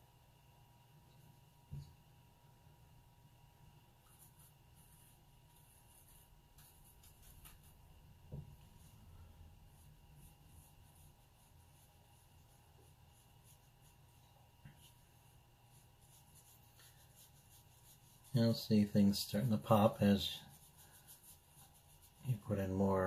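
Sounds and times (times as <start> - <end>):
brush scratching on paper: 4.0 - 23.0.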